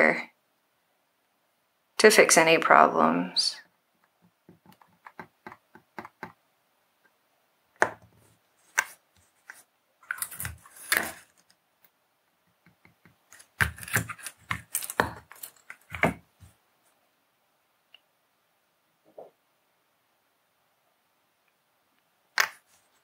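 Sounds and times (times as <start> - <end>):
tools clicking and tapping: 4.5 - 6.4.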